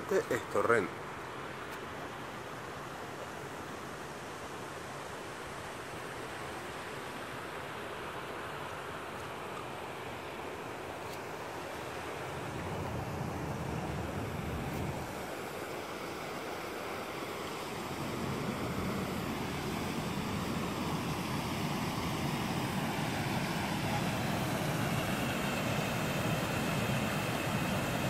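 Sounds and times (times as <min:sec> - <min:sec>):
wind on microphone: 0:12.2 - 0:15.3.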